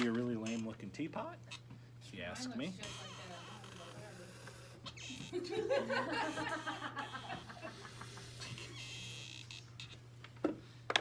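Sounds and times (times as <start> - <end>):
steady low hum: 0.0 - 11.0
person laughing: 5.3 - 8.6.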